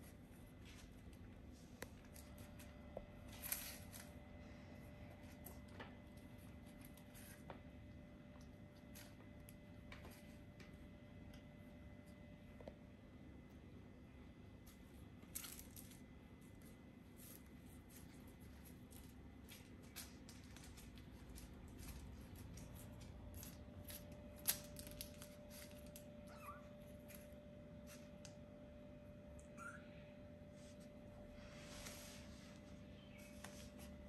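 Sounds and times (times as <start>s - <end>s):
kitten paws clicking and scratching: 0.0s - 12.2s, 14.6s - 28.5s
kitten squeak: 26.2s - 26.8s, 29.4s - 30.0s.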